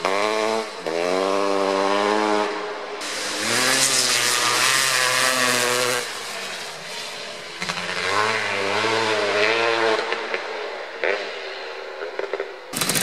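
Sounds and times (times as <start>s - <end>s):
two-stroke motorcycle engine revving: 0.0s - 6.8s, 7.5s - 13.0s.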